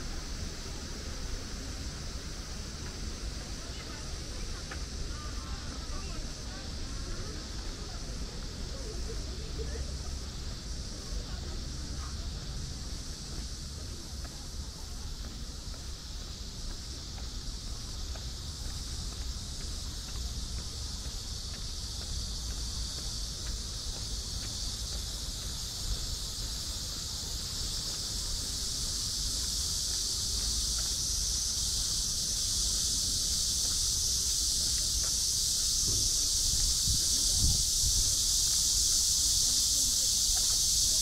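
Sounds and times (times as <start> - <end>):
insects buzzing: 0.0 - 41.0
wind rumble on microphone: 33.8 - 39.4.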